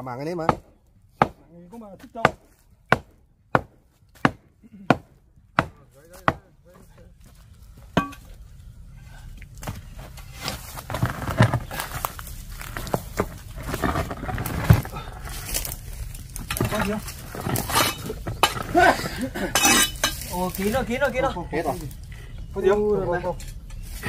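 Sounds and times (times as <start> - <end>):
sharp chopping strikes: 2.2 - 6.4
rustling and small knocks: 9.4 - 18.9.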